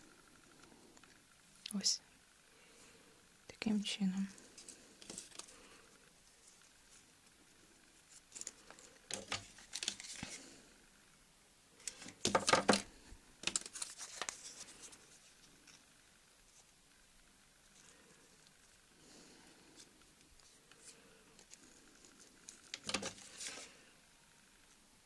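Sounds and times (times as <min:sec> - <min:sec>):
foam sheet rustling and crinkling: 0:11.8 - 0:15.5, 0:22.5 - 0:23.8.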